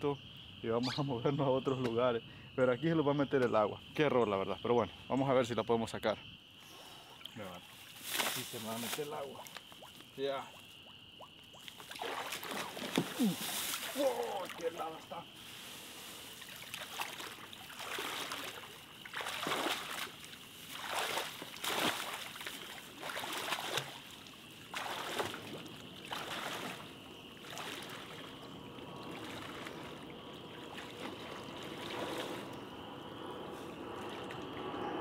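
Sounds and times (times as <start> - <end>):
legs wading through water: 7.8 - 34.8.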